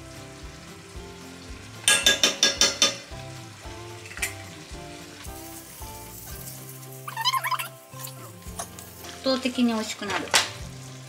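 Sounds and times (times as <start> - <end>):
light background music: 0.0 - 11.0
metal spoon clinking on pan: 1.9 - 3.1.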